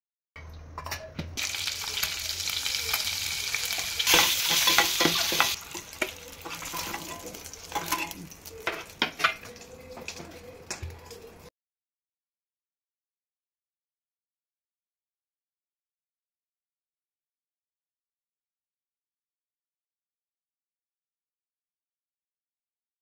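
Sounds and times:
eggs sizzling in hot oil: 0:01.4 - 0:11.4
steel spoon clinking and scraping pan: 0:03.7 - 0:10.3.

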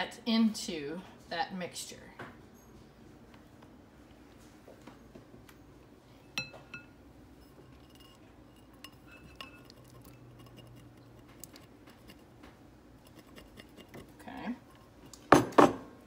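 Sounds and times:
glass bowls clinking: 0:06.2 - 0:10.8
spatula scraping bowl: 0:07.4 - 0:12.4, 0:13.0 - 0:15.3.

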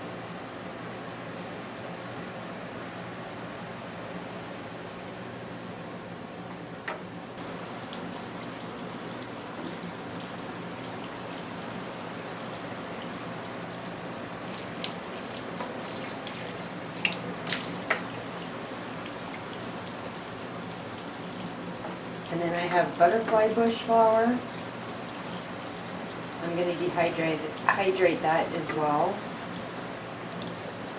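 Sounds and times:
faucet running into steel sink: 0:07.4 - 0:30.9
small splashes and clicks: 0:13.3 - 0:18.1, 0:30.0 - 0:30.9.

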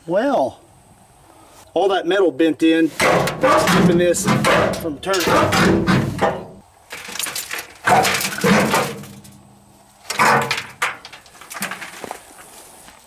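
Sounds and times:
debris rustling and clattering: 0:03.0 - 0:13.0.

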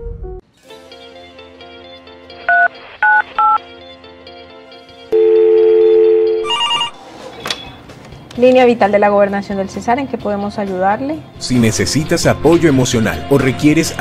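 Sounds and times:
soft background music: 0:00.2 - 0:14.0
telephone call tone: 0:05.2 - 0:07.0
telephone keypad tones: 0:05.2 - 0:07.0.

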